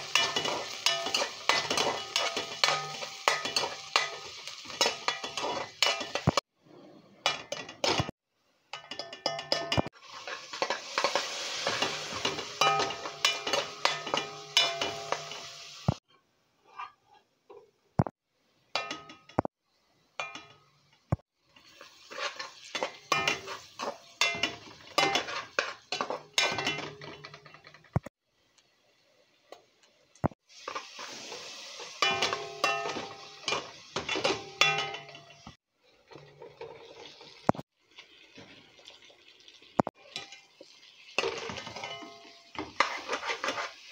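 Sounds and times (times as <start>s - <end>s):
spatula scraping frying pan: 0.0s - 8.1s, 9.5s - 16.0s, 21.6s - 27.9s, 41.2s - 43.9s.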